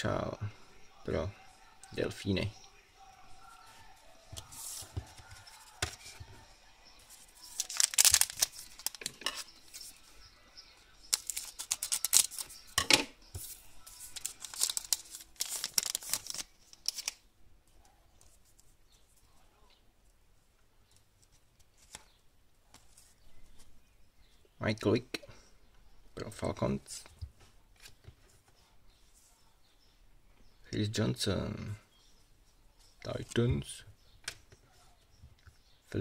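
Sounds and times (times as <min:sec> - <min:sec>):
faint handling of cards: 0:03.6 - 0:10.2, 0:11.0 - 0:19.4, 0:20.8 - 0:24.4
card pack wrapper crinkling and tearing: 0:07.4 - 0:09.2, 0:11.1 - 0:12.6, 0:14.0 - 0:17.2.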